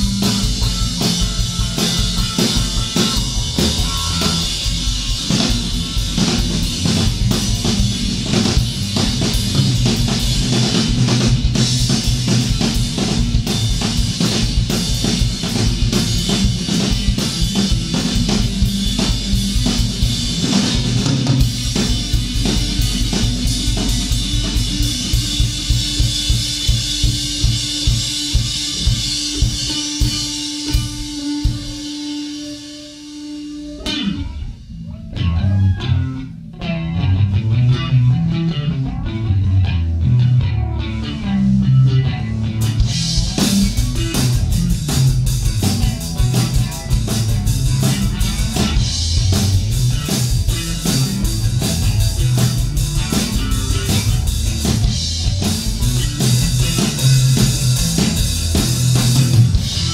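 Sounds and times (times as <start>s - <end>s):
electric bass guitar: 0.0s - 59.9s
rock drum kit: 0.0s - 59.9s.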